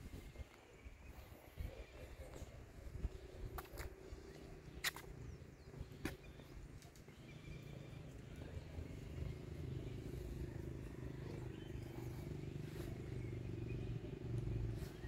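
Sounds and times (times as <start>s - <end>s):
low engine hum: 3.2s - 15.0s.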